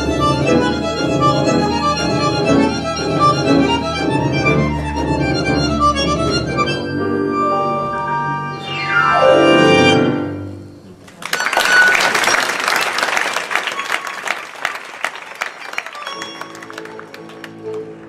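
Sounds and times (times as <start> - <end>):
tango quartet playing: 0.0 - 11.0, 16.0 - 18.0
audience applauding: 11.0 - 18.0.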